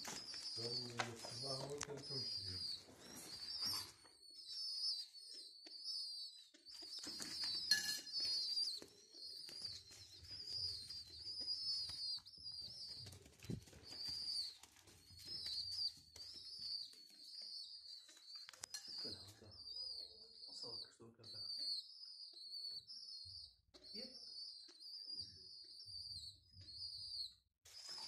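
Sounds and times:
pigeon chicks peeping: 0.0s - 28.0s
wings flapping: 6.6s - 17.1s.

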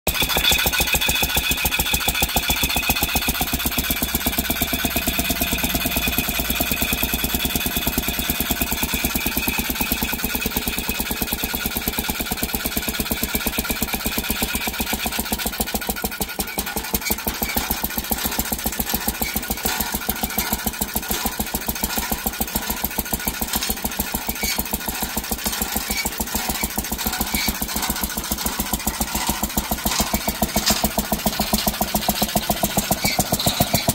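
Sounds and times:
single-cylinder engine running: 0.0s - 33.9s
saw blade moving back and forth: 16.2s - 33.9s.

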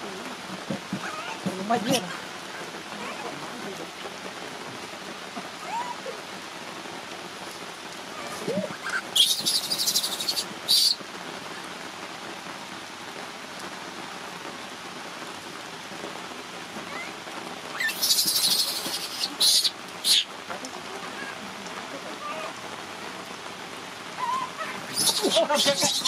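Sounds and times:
heavy rain falling: 0.0s - 26.0s
baby monkey screaming: 1.0s - 2.1s, 5.6s - 6.2s, 8.1s - 11.0s, 16.9s - 20.3s, 21.1s - 21.4s, 22.2s - 22.6s, 24.2s - 26.0s
soft monkey calls: 1.0s - 3.4s, 5.6s - 6.3s, 8.1s - 11.0s, 16.8s - 20.3s, 21.0s - 22.6s, 24.1s - 26.0s.

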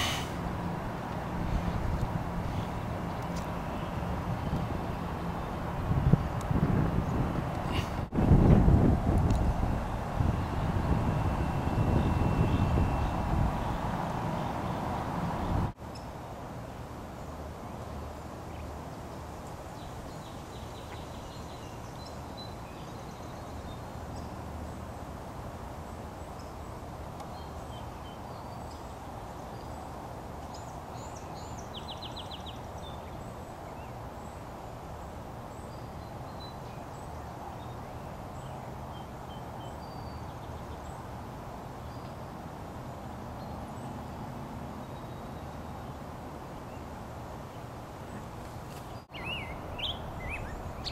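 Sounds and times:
outdoor background noise: 0.0s - 50.9s
bird trill: 49.1s - 50.9s.

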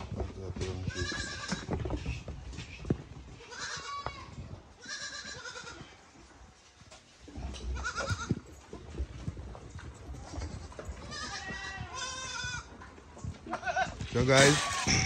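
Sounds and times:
goat kids bleating: 0.8s - 1.7s, 3.4s - 6.2s, 7.4s - 8.5s, 10.1s - 15.0s.

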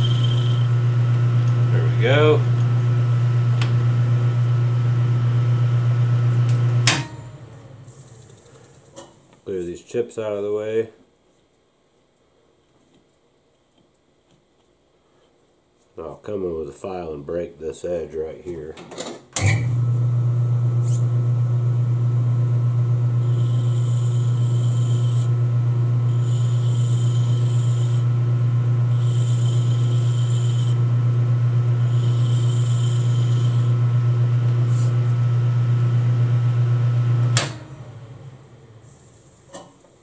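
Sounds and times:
file scraping spinning metal: 0.0s - 1.2s, 23.2s - 33.9s
lathe spinning down: 0.0s - 6.7s, 19.6s - 38.4s
lathe humming: 0.0s - 6.8s, 19.5s - 38.7s.

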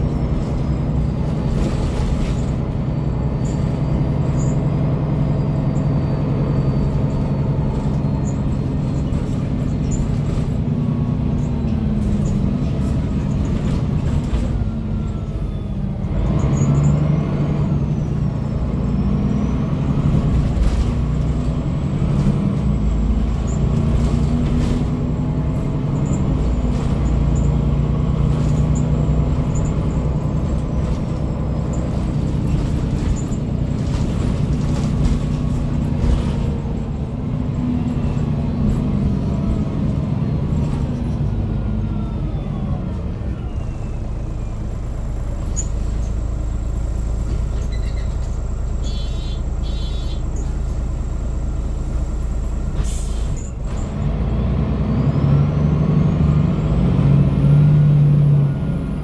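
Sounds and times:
bus diesel engine running: 0.0s - 59.0s
gearbox whine: 17.7s - 54.0s
body knocks and rattles: 30.2s - 36.8s.

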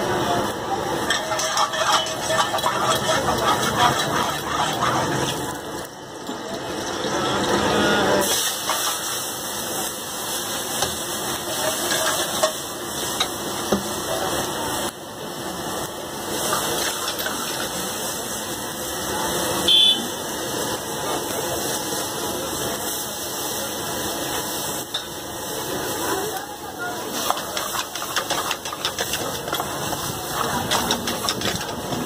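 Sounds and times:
oil sizzling in wok: 0.0s - 32.0s
ladle clacking: 1.1s - 5.4s, 27.2s - 32.0s.

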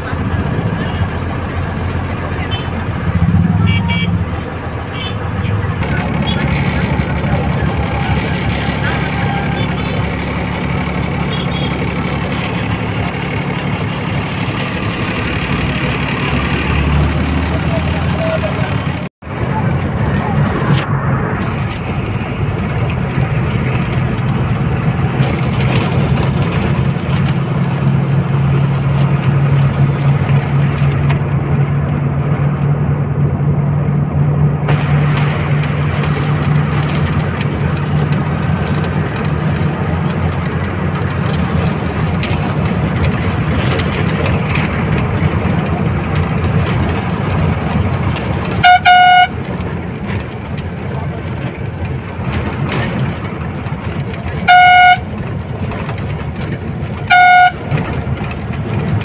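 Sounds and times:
bus diesel engine running: 0.0s - 59.0s
road noise: 0.0s - 59.0s
loud horn blast: 2.4s - 6.8s, 7.4s - 10.4s, 11.0s - 12.0s, 48.5s - 49.5s, 54.5s - 55.1s, 57.1s - 57.8s.

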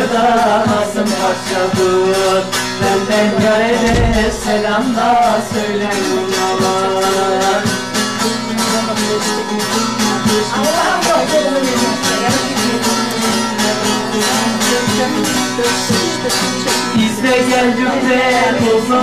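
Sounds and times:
long-necked lute strummed: 3.5s - 5.9s.

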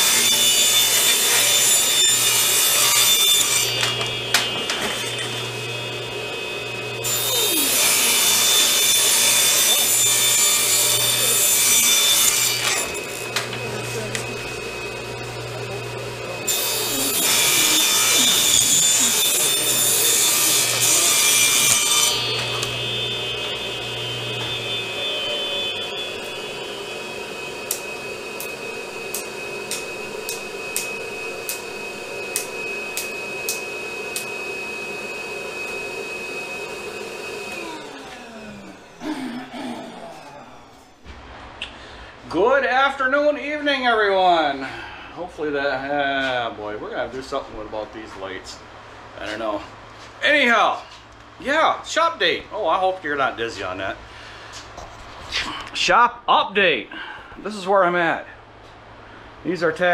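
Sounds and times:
table saw cutting plywood: 0.0s - 41.1s
shop vacuum whining: 0.0s - 42.4s.

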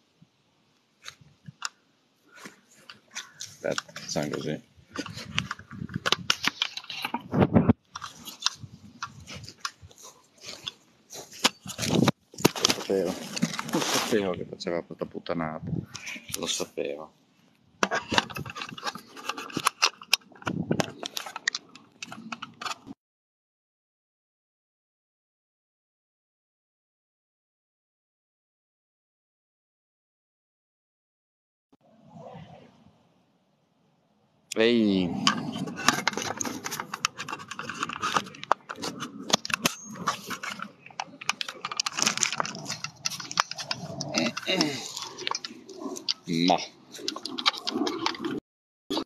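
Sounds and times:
rapid clicks and rustles: 1.0s - 14.2s, 17.8s - 23.0s, 35.2s - 49.0s
phone handling noise: 2.4s - 13.9s, 17.8s - 22.9s, 35.2s - 46.3s.

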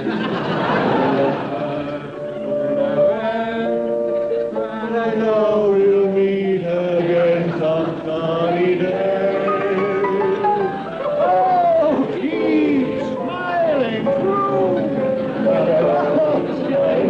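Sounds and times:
men singing in chorus: 1.0s - 10.8s.

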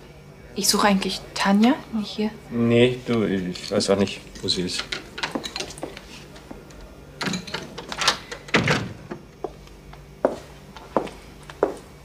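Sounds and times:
door closing thud: 8.1s - 9.2s
footsteps: 9.4s - 11.9s.

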